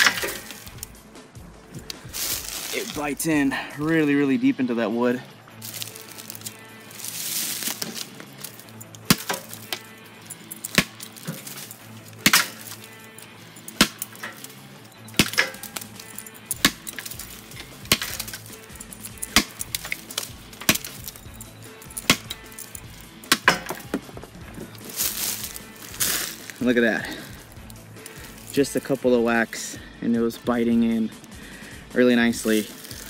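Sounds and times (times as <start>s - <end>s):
hatchet chopping into tree trunk: 9.1s - 9.8s, 12.2s - 12.7s, 15.2s - 15.8s, 19.3s - 19.6s, 20.6s - 21.0s, 23.3s - 24.2s.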